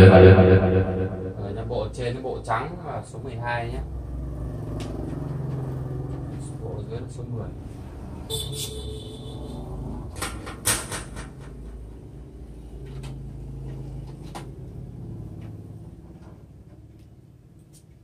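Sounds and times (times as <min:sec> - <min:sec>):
low hum: 0:00.0 - 0:02.2.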